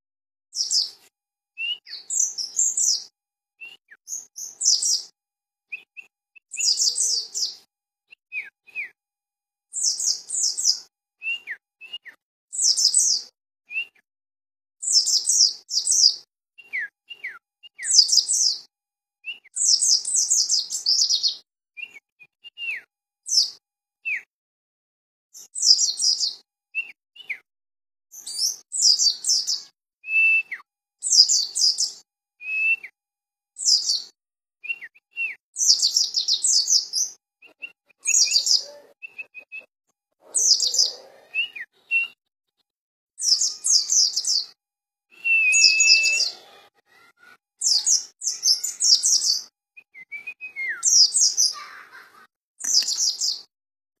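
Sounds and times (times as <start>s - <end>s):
whistled bird notes: 0.6s - 1.0s, 1.6s - 5.1s, 5.7s - 9.0s, 9.8s - 14.0s, 14.8s - 24.3s, 25.4s - 27.4s, 28.2s - 33.0s, 33.6s - 39.7s, 40.3s - 42.2s, 43.2s - 51.9s, 52.6s - 53.5s
bird twittering: 34.7s - 39.7s, 45.2s - 52.0s.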